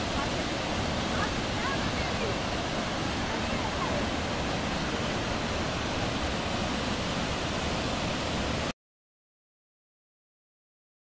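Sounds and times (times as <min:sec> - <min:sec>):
waterfall rushing roar: 0:00.0 - 0:08.7.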